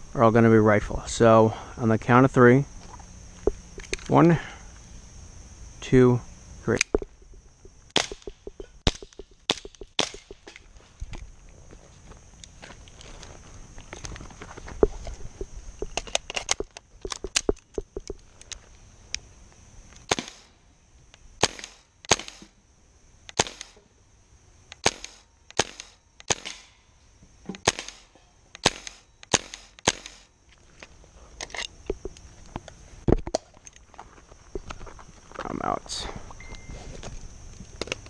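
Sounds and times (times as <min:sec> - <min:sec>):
airsoft rifle shots: 0:07.9 - 0:10.5, 0:20.0 - 0:20.6, 0:21.4 - 0:22.5, 0:23.3 - 0:23.8, 0:24.8 - 0:26.8, 0:27.6 - 0:30.3.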